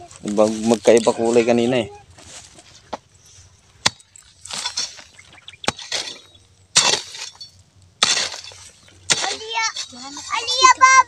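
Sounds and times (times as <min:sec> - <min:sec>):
loose earth scraping and crumbling: 0:00.0 - 0:11.0
metal hoe chopping soil: 0:03.8 - 0:11.0.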